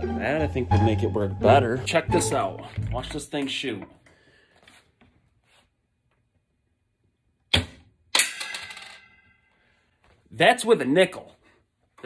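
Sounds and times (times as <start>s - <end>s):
coin striking and ringing: 8.1s - 9.4s.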